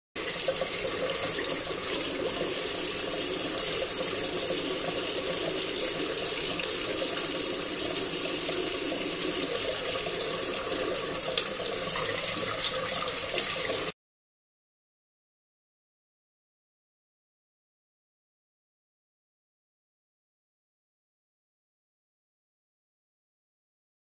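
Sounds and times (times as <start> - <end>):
tap water splashing into sink: 0.2 - 13.9.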